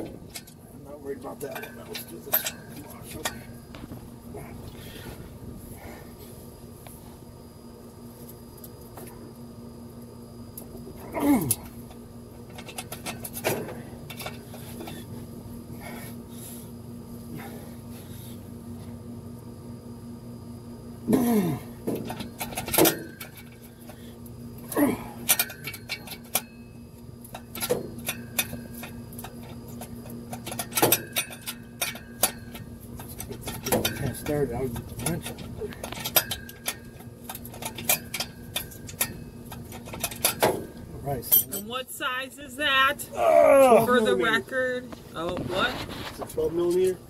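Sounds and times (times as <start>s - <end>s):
metal tools clinking: 0.3s - 3.6s, 25.2s - 26.7s, 27.3s - 40.5s, 41.1s - 41.8s.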